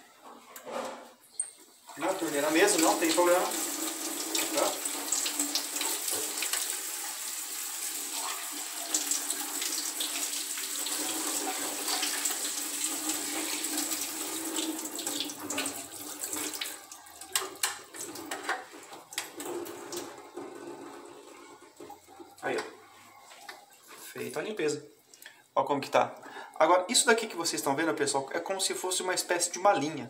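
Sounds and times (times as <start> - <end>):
tap water splashing on plastic: 4.3 - 6.8, 15.0 - 20.1.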